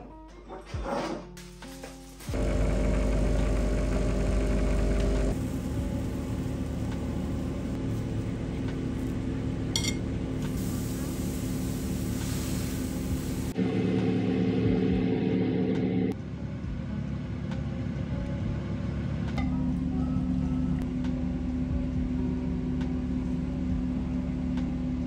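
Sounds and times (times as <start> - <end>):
car engine and road hum: 2.4 - 10.6.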